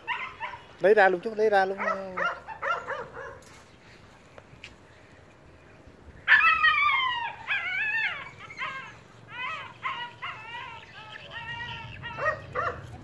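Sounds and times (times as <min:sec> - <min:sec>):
dog whining and yelping: 0:00.0 - 0:00.6, 0:06.3 - 0:13.0.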